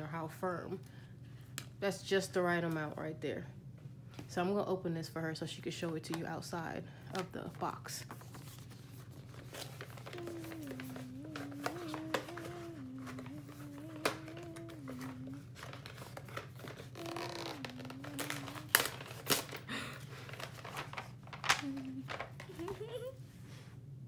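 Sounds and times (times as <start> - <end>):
person humming: 10.0 - 15.8, 16.7 - 19.9, 21.5 - 23.2.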